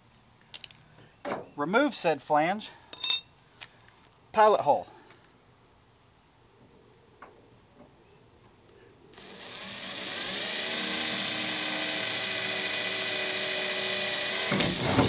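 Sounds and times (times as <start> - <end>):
cordless drill whining through metal: 9.2 - 15.0.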